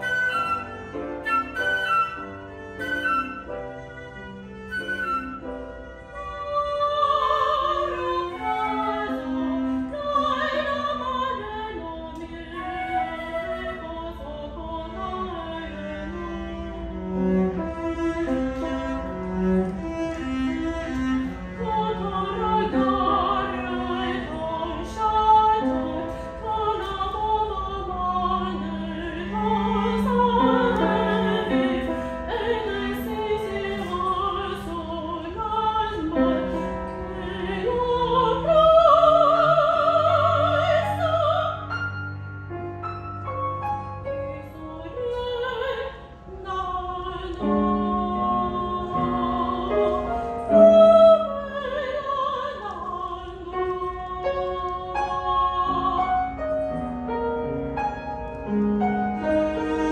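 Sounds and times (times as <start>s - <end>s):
cello: 0.0s - 59.9s
grand piano: 0.0s - 59.9s
soprano singing: 0.0s - 59.9s.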